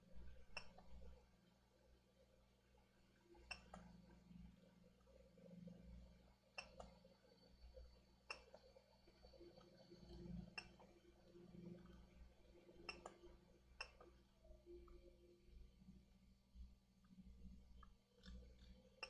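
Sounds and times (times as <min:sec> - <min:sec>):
faint sharp clicks: 0:03.4 - 0:04.1, 0:06.6 - 0:07.0, 0:08.2 - 0:11.0, 0:12.8 - 0:14.2.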